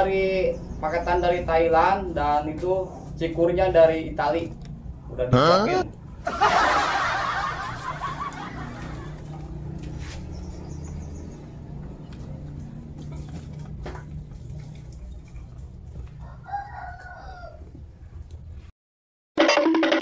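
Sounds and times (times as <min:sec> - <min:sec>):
laughter: 0:06.2 - 0:09.4
rooster crowing: 0:16.2 - 0:17.8.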